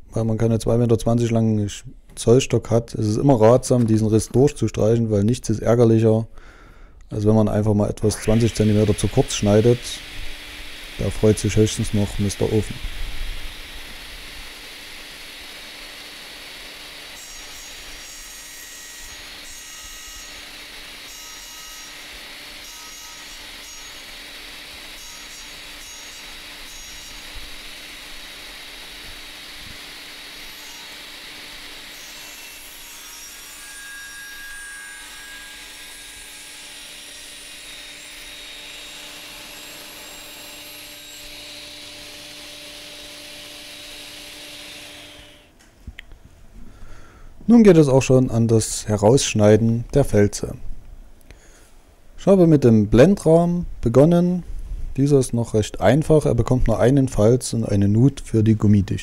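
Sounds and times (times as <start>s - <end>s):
table saw humming: 8.0s - 45.6s.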